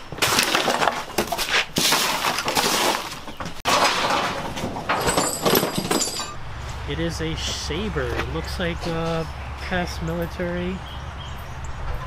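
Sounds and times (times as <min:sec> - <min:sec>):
junk clattering and crashing: 0:00.0 - 0:06.5.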